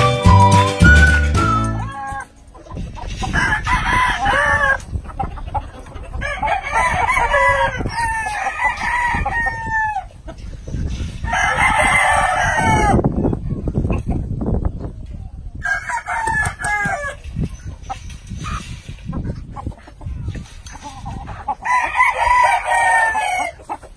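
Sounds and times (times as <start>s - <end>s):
roosters crowing: 0.3s - 2.4s, 3.1s - 5.0s, 5.6s - 10.2s, 11.1s - 13.3s, 15.6s - 17.5s, 20.8s - 23.9s.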